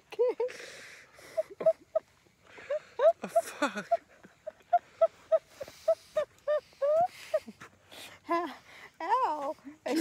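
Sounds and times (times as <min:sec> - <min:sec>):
woman laughing hard: 0:01.2 - 0:07.6.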